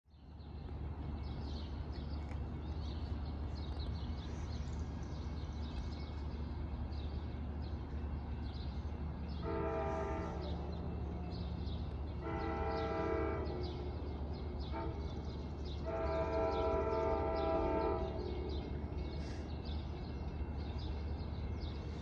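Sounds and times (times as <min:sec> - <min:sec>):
train rumble: 0:00.1 - 0:22.0
train air horn: 0:09.4 - 0:10.8, 0:12.2 - 0:13.8, 0:14.7 - 0:15.2, 0:15.8 - 0:18.3.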